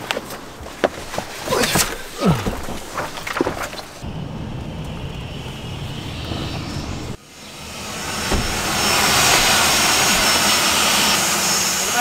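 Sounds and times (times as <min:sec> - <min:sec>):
low vehicle rumble: 0:00.0 - 0:12.0
jet engine whine and hiss: 0:04.0 - 0:12.0.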